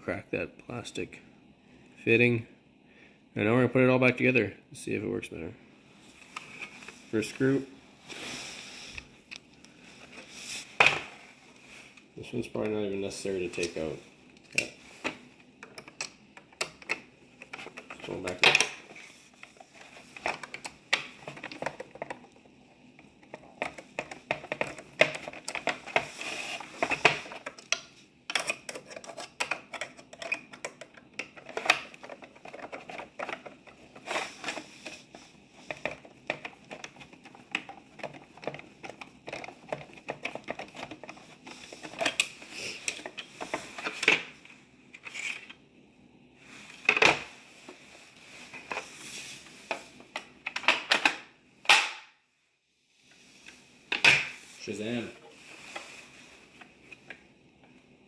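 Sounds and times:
screwdriver clicking and scraping: 0:23.2 - 0:34.7
plastic parts knocking: 0:35.6 - 0:42.2.

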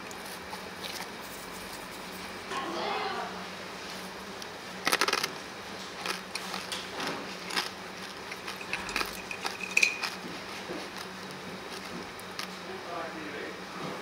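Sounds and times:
tableware clattering: 0:08.5 - 0:10.2.

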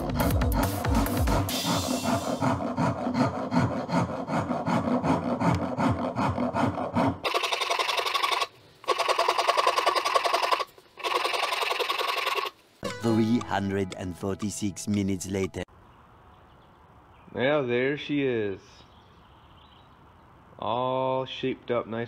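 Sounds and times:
music with a steady beat: 0:00.0 - 0:02.3.

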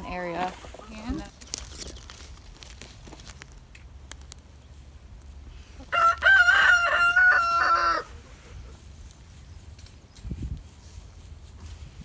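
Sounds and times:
rooster crowing: 0:05.8 - 0:08.4.

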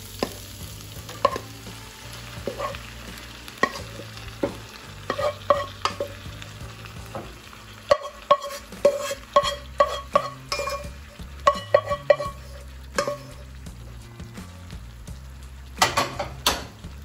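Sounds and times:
spoon clinking against metal pot: 0:05.1 - 0:06.1, 0:07.9 - 0:13.4.

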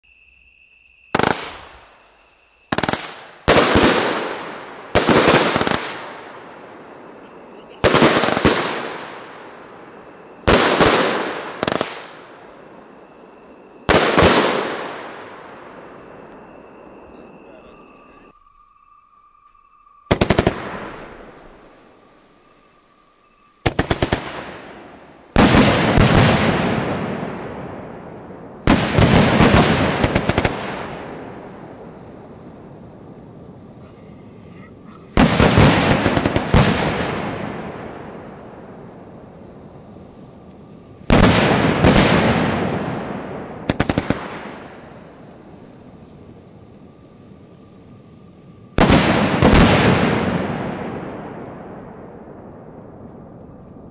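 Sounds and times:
firework sharp pops: 0:01.1 - 0:02.0, 0:02.7 - 0:17.9, 0:23.6 - 0:27.4, 0:28.6 - 0:31.7, 0:35.0 - 0:39.2, 0:40.4 - 0:47.0, 0:48.8 - 0:53.9
firework bursts with rumble: 0:01.1 - 0:17.0, 0:23.6 - 0:33.8, 0:35.1 - 0:40.1, 0:40.9 - 0:47.9, 0:48.5 - 0:53.9.

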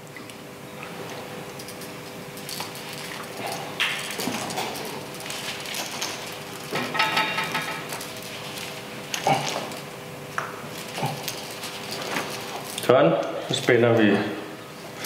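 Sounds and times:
hose handling rustle: 0:01.6 - 0:09.9, 0:10.6 - 0:14.1.

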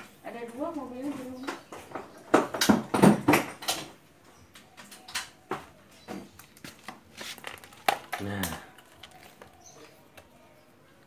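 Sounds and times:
tools and metal parts clattering: 0:01.8 - 0:04.0.

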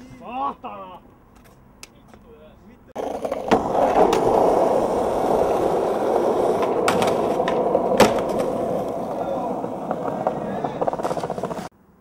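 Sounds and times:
skateboard clacks: 0:03.0 - 0:11.7
skateboard wheels rolling on asphalt: 0:03.0 - 0:11.7.

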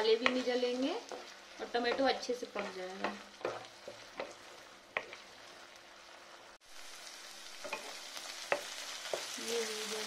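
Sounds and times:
spatula knocking on wok: 0:00.0 - 0:05.3, 0:07.6 - 0:09.4
masala sizzling in a wok: 0:00.0 - 0:10.0.

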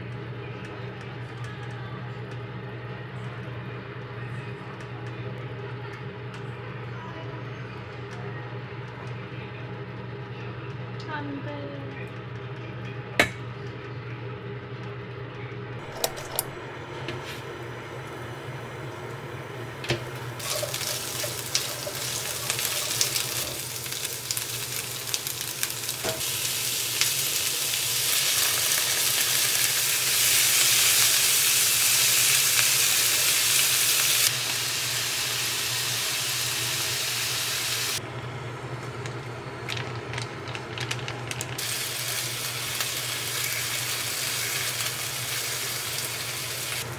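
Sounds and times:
steady low hum: 0:00.0 - 0:30.9
meat and cabbage sizzling in a wok: 0:20.4 - 0:38.0, 0:41.6 - 0:46.9.

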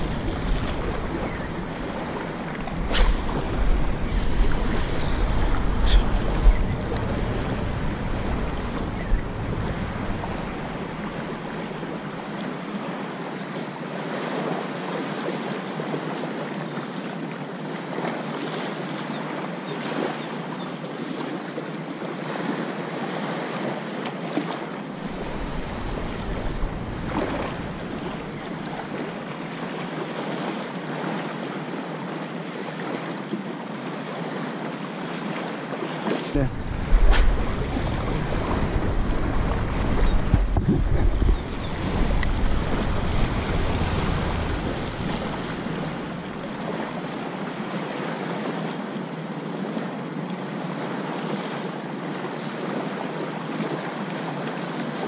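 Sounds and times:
wind buffeting microphone: 0:00.0 - 0:12.6, 0:24.9 - 0:29.5, 0:36.3 - 0:47.1
small waves lapping on sand: 0:00.0 - 0:55.0.

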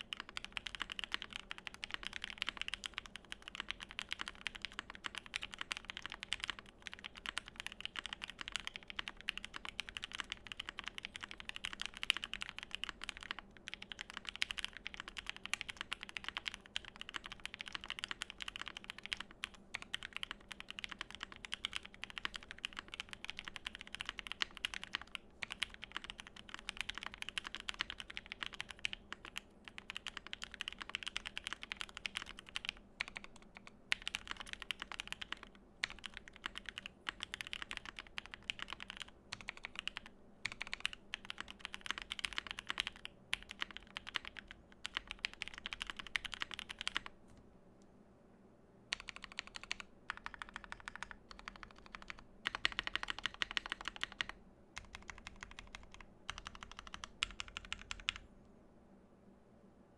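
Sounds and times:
mechanical keyboard typing: 0:00.0 - 0:47.1, 0:48.9 - 0:58.2.

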